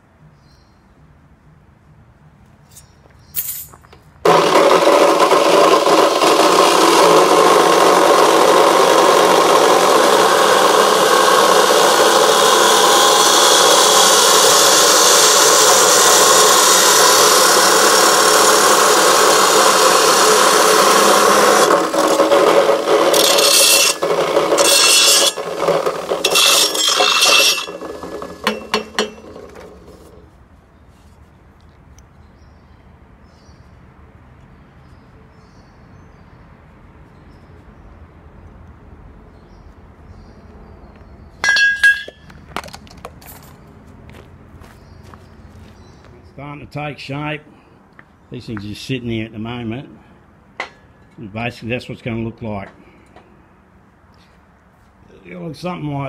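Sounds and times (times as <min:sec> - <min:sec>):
chop saw grinding through steel: 0:04.2 - 0:30.2.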